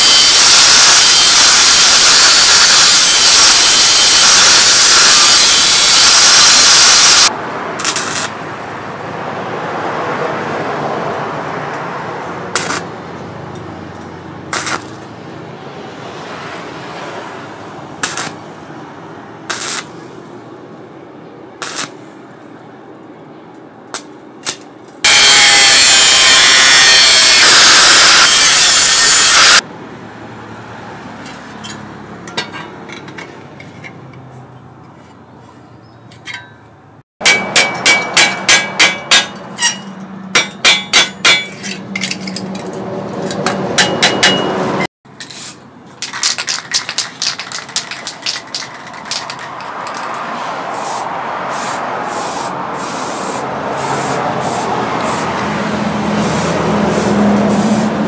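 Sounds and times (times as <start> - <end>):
hacksaw cutting steel: 0.0 - 8.4, 12.6 - 12.9, 14.5 - 15.0, 18.0 - 18.4, 19.5 - 20.0, 24.4 - 29.6, 37.2 - 42.7, 43.3 - 44.5
loud steady rushing noise: 0.0 - 13.1, 24.0 - 30.1, 48.0 - 58.0.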